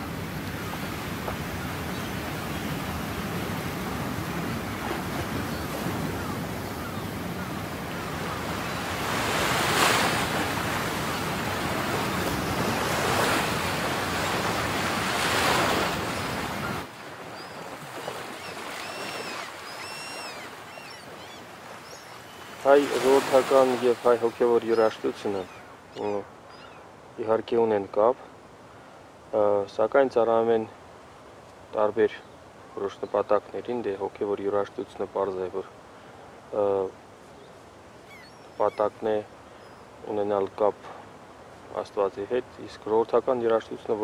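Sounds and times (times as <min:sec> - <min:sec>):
waves breaking against shore: 0:00.0 - 0:26.0
wind: 0:00.0 - 0:44.0
gull calls: 0:05.4 - 0:08.9, 0:16.0 - 0:26.8, 0:38.0 - 0:39.0.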